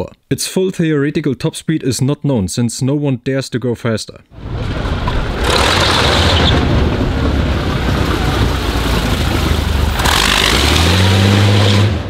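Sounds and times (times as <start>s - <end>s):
tyres spinning: 4.4s - 11.0s.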